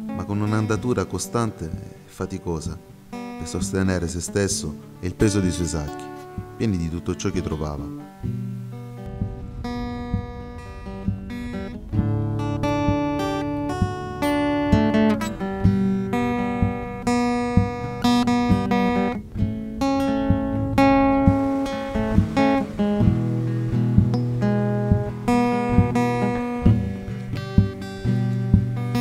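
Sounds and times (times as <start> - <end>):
acoustic guitar arpeggios: 0.0 - 29.0
low bass notes: 7.3 - 29.0.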